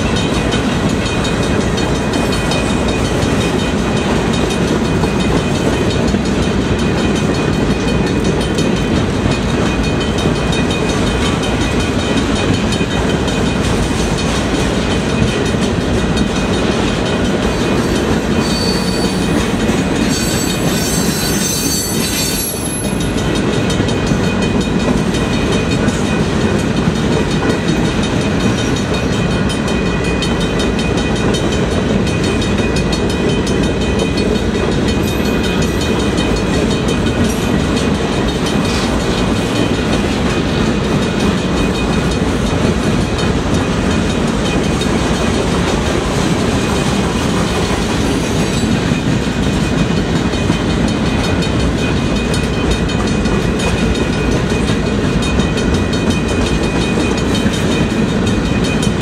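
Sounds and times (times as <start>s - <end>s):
train wheels rumbling on rails: 0.0s - 59.0s
wheel squeal: 18.4s - 23.1s.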